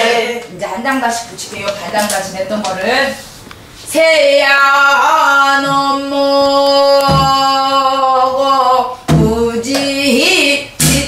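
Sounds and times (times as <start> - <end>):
woman singing a long note: 4.0 - 11.0
barrel drum struck: 7.1 - 7.6.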